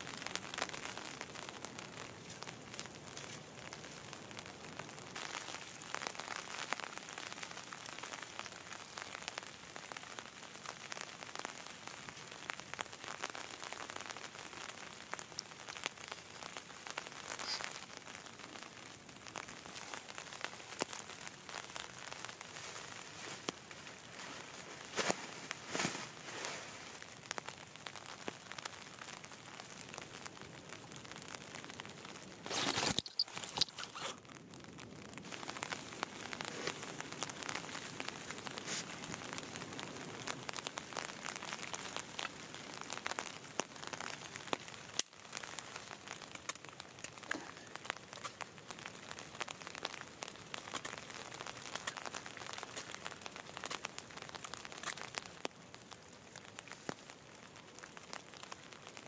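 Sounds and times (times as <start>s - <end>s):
tarp crinkling: 13.2s - 30.1s, 31.1s - 34.5s, 35.2s - 48.9s.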